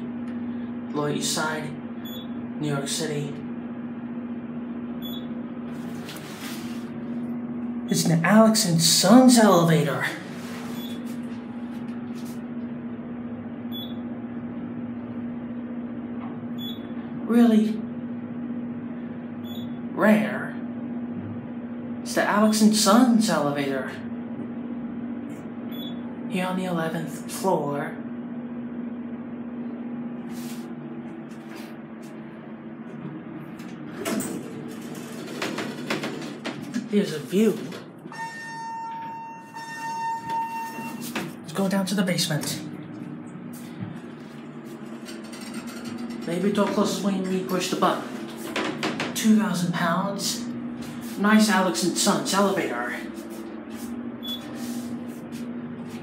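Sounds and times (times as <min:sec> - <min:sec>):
elevator car humming: 0:00.0 - 0:19.9, 0:28.1 - 0:56.0
elevator doors clunking open: 0:33.5 - 0:41.4, 0:44.8 - 0:47.1, 0:48.0 - 0:49.3
low held tone: 0:38.0 - 0:41.2
short high beep: 0:38.1 - 0:41.1.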